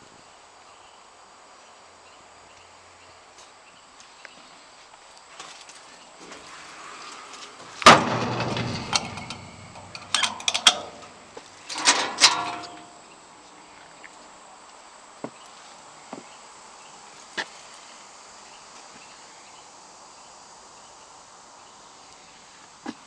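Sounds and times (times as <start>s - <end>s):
door scraping: 6.2s - 13.0s
latch clicks: 7.8s - 13.0s
metal door banging and rattling: 7.8s - 13.0s.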